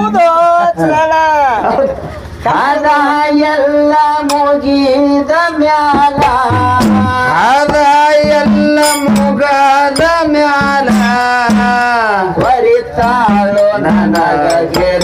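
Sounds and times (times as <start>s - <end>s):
steady held notes: 2.0s - 15.0s
man singing folk song: 2.4s - 15.0s
drum strokes: 4.1s - 15.0s.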